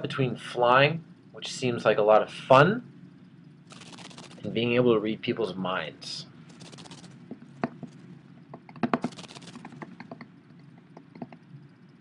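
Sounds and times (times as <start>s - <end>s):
low room hum: 0.0s - 12.0s
light clicks and taps: 9.6s - 11.5s.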